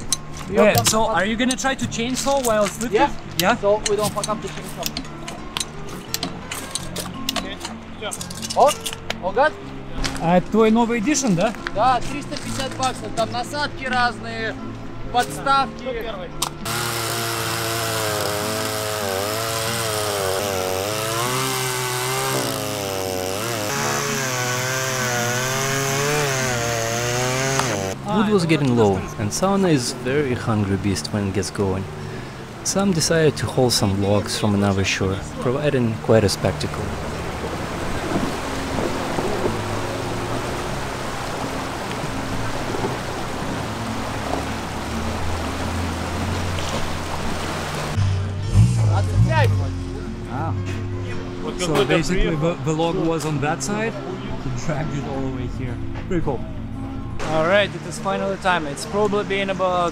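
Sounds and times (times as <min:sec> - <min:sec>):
chainsaw cutting log: 0:16.5 - 0:28.0
river water rushing over gravel: 0:29.6 - 0:48.0.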